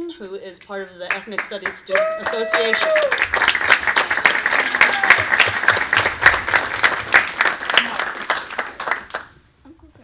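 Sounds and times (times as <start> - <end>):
audience applauding: 1.1 - 9.3.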